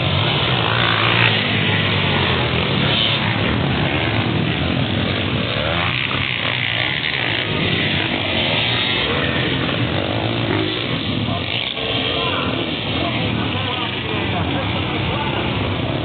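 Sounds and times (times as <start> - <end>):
dirt bike engines racing past: 0.0 - 16.0.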